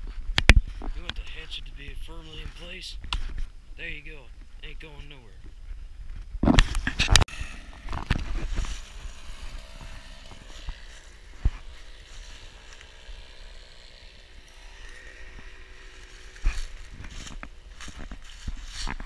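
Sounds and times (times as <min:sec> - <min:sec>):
footsteps on dry leaves: 0:07.3 - 0:19.0.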